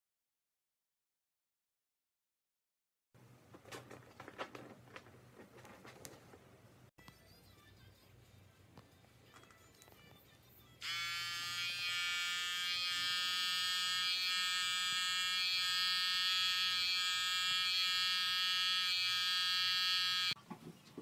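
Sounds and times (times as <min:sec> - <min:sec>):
electric hair clipper buzzing: 0:10.8 - 0:20.4.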